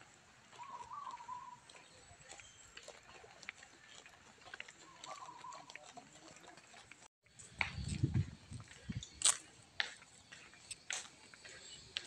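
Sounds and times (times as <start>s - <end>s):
wavering animal calls: 0.5s - 1.7s, 4.8s - 6.1s.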